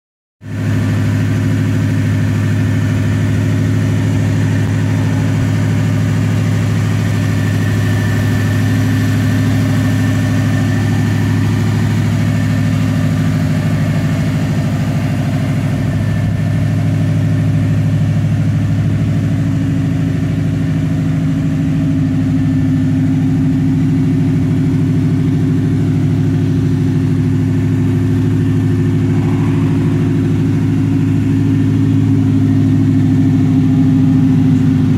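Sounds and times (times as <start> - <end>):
pickup truck engine idling: 0.4 - 34.9.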